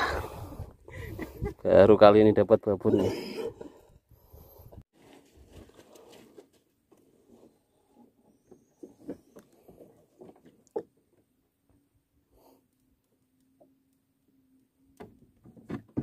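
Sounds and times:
hands handling gear on wooden boat: 5.0s - 11.3s.

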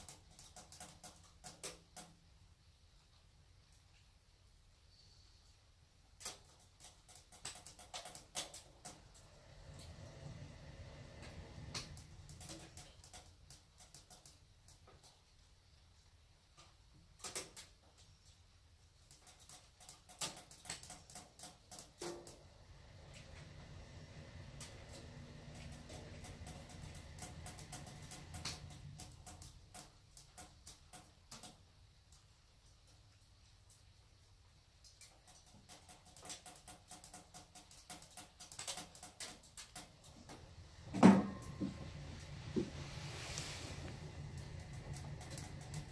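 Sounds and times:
faint steady hum: 7.5s - 17.2s, 21.7s - 35.9s, 37.7s - 45.9s
pellet stove crackling: 35.0s - 45.9s
low steady hum: 39.9s - 45.9s
loud thump: 40.9s - 41.8s.

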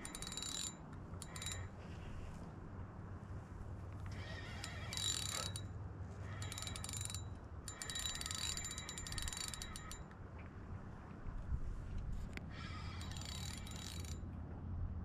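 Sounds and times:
fishing reel drag clicking: 0.0s - 1.7s, 4.0s - 5.7s, 6.3s - 10.0s, 12.6s - 14.2s.

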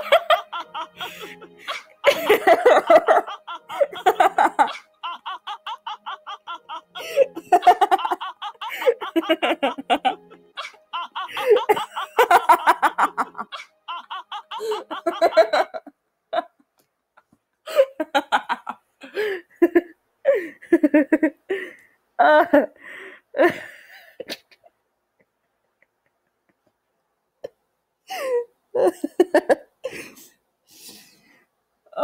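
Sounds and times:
person laughing hard: 0.0s - 16.5s.

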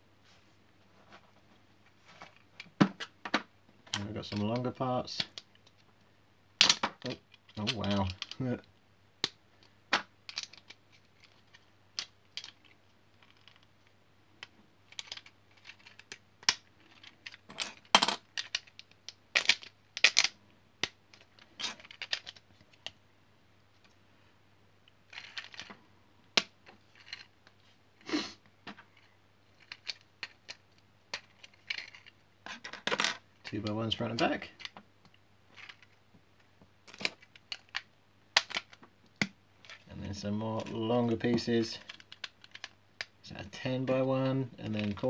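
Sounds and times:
plastic bricks clicking together: 6.6s - 8.4s, 9.2s - 13.7s, 14.4s - 23.0s, 25.1s - 25.7s, 29.0s - 33.2s, 34.6s - 36.0s, 36.8s - 39.8s, 41.8s - 43.2s.

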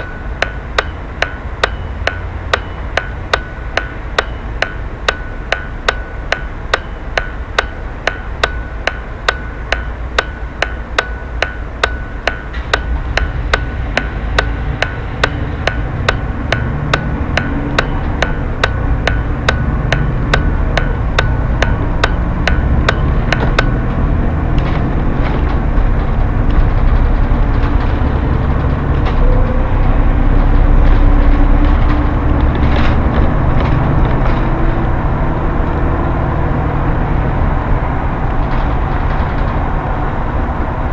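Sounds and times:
turn signal relay ticking: 0.0s - 29.3s
bus engine rumble: 0.0s - 40.9s
road noise: 0.0s - 40.9s.

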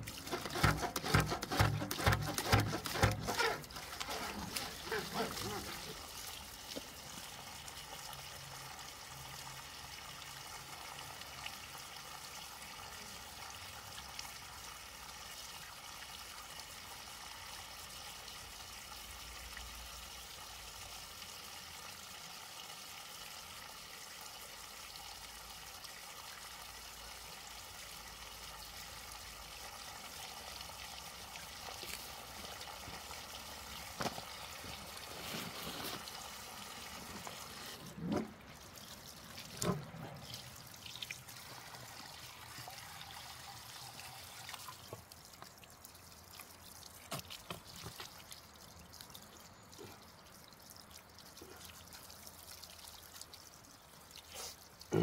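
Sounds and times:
water stream splashing onto rocks: 0.0s - 8.2s, 31.2s - 43.0s, 44.1s - 55.0s.

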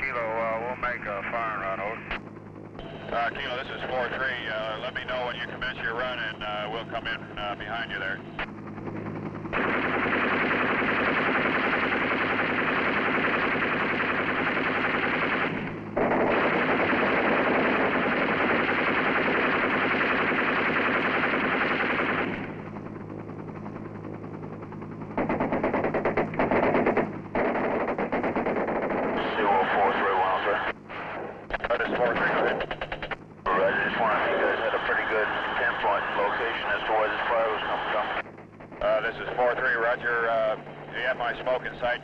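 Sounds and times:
machine-gun fire bursts: 9.5s - 22.6s, 25.2s - 29.2s.

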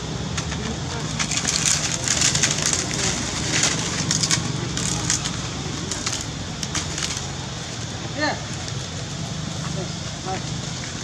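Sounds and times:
dry leaves crunching: 0.0s - 7.8s.

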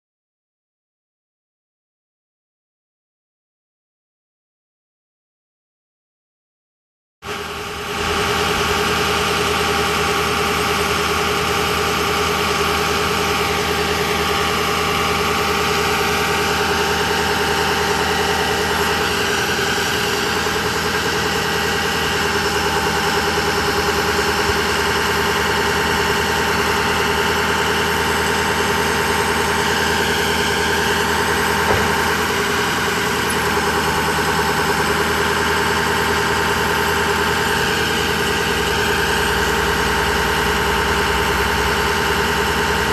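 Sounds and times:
diesel truck engine idling: 7.3s - 42.9s
hydraulic boom lifting: 13.9s - 38.4s.

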